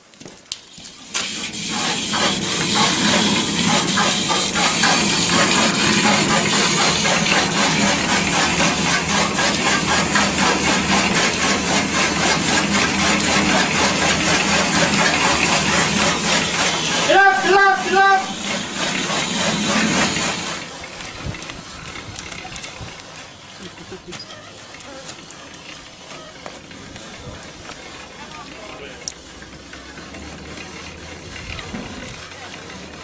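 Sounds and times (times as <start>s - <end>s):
machine running with loud hiss: 0.7s - 24.2s
rapid even mechanical beat: 1.7s - 20.6s.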